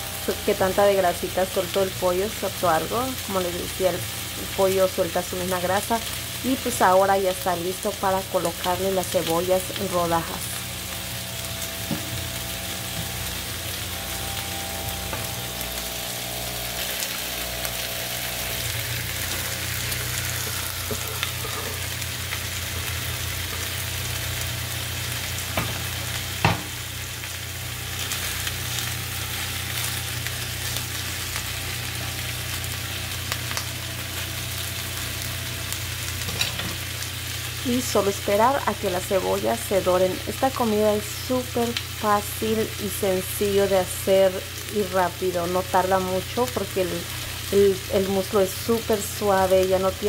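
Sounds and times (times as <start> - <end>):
chicken sizzling in a frying pan: 0.0 - 50.0
spatula working through pan: 18.3 - 23.9
sharp knocks in pan: 26.4 - 26.7.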